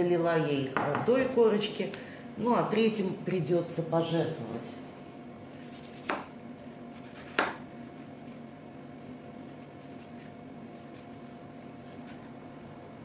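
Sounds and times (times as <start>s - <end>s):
low steady hum: 0.0s - 13.0s
knife knocking on cutting board: 0.8s - 1.1s, 7.3s - 7.6s
knife scraping orange peel: 5.5s - 6.3s, 6.9s - 12.4s.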